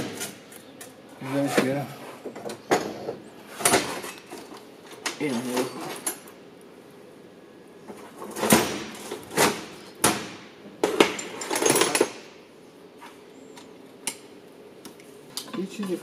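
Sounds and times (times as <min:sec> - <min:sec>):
metal tools clanking on engine block: 0:02.3 - 0:06.3, 0:10.9 - 0:12.3.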